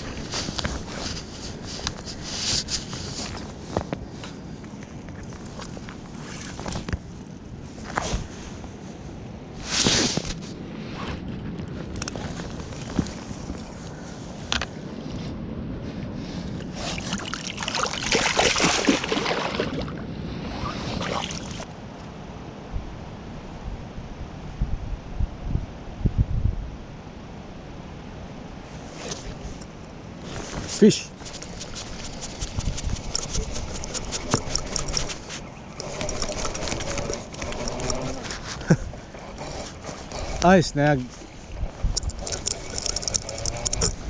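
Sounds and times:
water splashing in a creek: 16.6 - 21.7, 31.1 - 44.0
fishing reel ticking: 31.3 - 40.6, 41.6 - 44.0.

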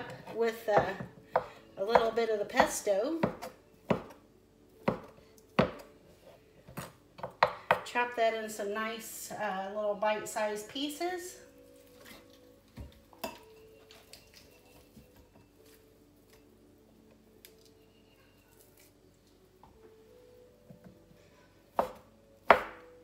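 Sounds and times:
knife chopping on wooden board: 21.8 - 22.8.

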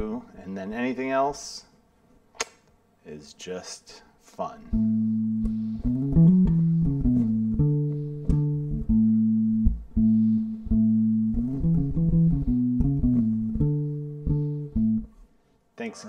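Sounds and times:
electric bass guitar: 4.7 - 15.2.

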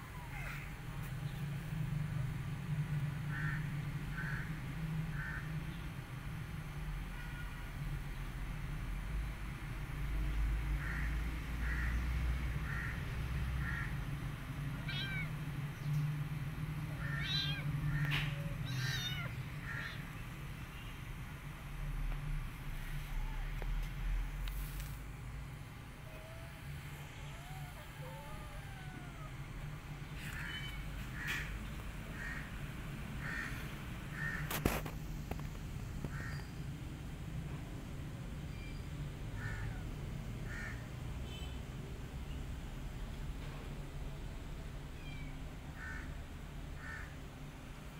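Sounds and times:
kitten mewing: 0.0 - 0.9, 14.8 - 15.4, 17.0 - 20.0, 26.0 - 29.6
bird cawing: 3.3 - 5.5, 12.6 - 13.0, 13.6 - 14.0, 17.0 - 20.1, 26.1 - 29.3, 30.2 - 32.6, 33.2 - 34.6, 36.1 - 36.5, 39.4 - 40.8, 45.8 - 46.2, 46.8 - 47.2.

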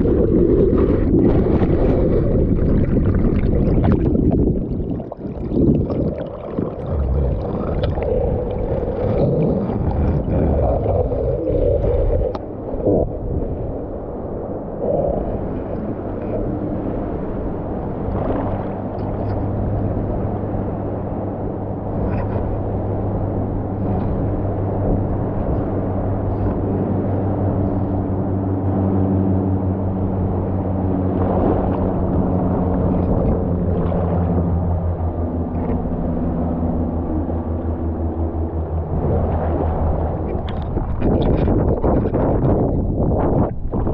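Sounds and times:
water sloshing and gurgling: 0.0 - 43.9.

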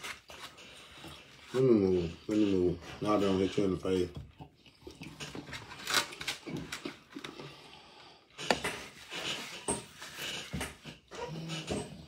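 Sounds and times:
chewing and mouth smacking: 4.3 - 7.4.

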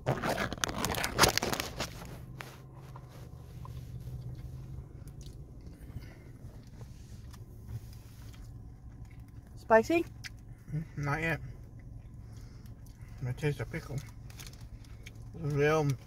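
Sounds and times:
paper wrapper rustling: 0.0 - 4.2
person chewing: 0.0 - 10.8, 11.6 - 13.2, 14.0 - 16.0
crispy wrap crackling: 0.0 - 16.0
low steady hum: 0.0 - 16.0.

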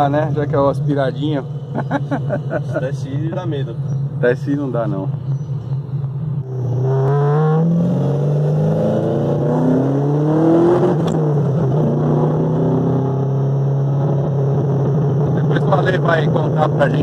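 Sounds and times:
car engine revving and shifting: 4.9 - 17.0.

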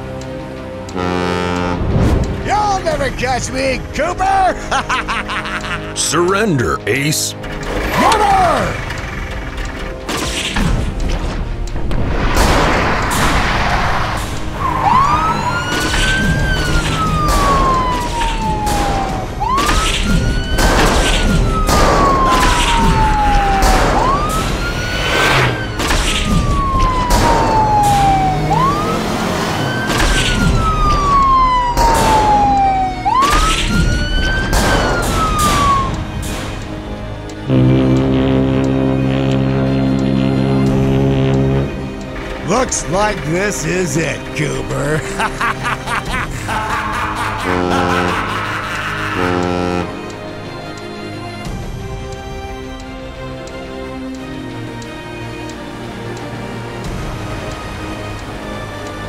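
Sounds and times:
police siren wailing: 0.9 - 1.8, 13.6 - 59.0.

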